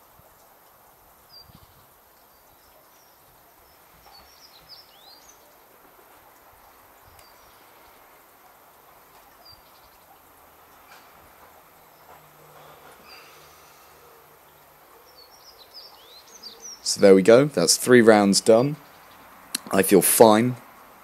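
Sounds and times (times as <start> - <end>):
faint outdoor hiss: 0.0 - 21.0
bird chirps: 1.3 - 5.7, 11.8 - 17.1.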